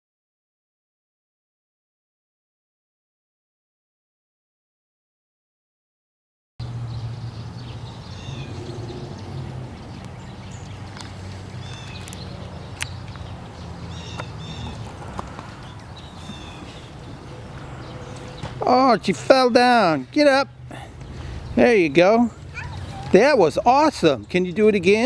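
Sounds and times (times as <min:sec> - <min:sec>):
small birds chirping: 0:06.6 - 0:25.0.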